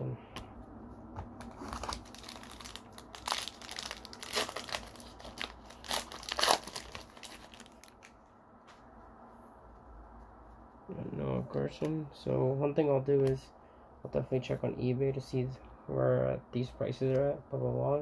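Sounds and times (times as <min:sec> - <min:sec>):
foil wrapper tearing and crinkling: 0:01.4 - 0:08.1.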